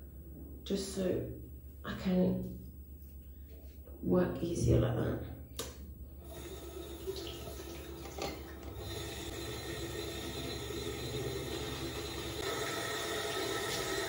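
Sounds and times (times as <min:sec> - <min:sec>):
tap water running into basin: 0:06.2 - 0:14.0.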